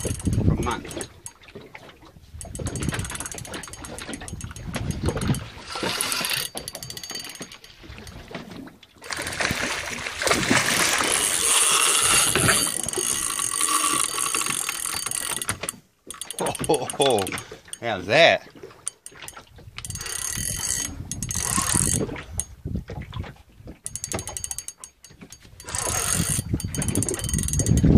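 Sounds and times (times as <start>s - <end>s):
fishing reel clicking: 0.0s - 1.4s, 2.4s - 8.4s, 9.0s - 9.7s, 10.5s - 18.0s, 18.8s - 22.5s, 23.8s - 27.9s.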